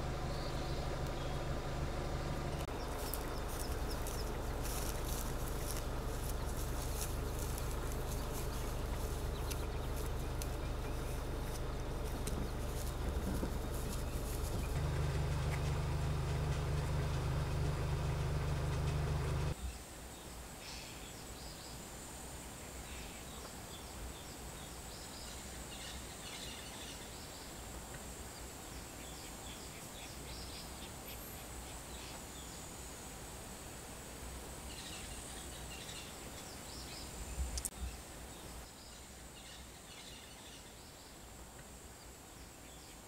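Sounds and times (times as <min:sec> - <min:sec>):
road noise: 0:00.0 - 0:19.6
vehicle engine humming: 0:00.0 - 0:19.6.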